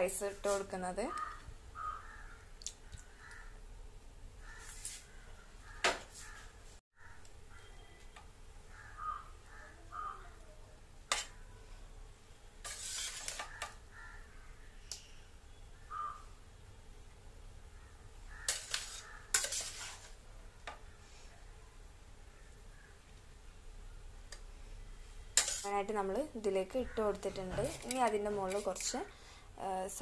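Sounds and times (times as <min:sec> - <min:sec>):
utensils clinking on metal pots: 0:18.5 - 0:20.1, 0:25.4 - 0:25.9, 0:27.1 - 0:29.0.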